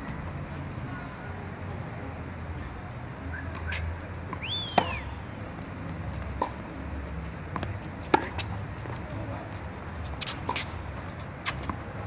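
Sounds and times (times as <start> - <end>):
shoe squeak: 3.3 - 5.2
tennis ball hits: 3.5 - 5.0, 6.4 - 6.6, 7.5 - 9.0.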